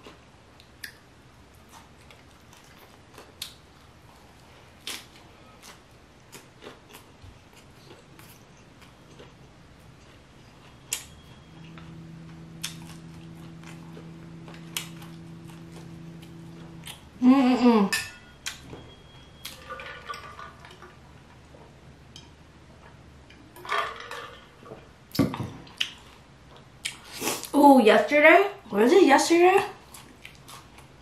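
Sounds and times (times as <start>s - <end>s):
woman humming with enjoyment: 12.1s - 18.0s.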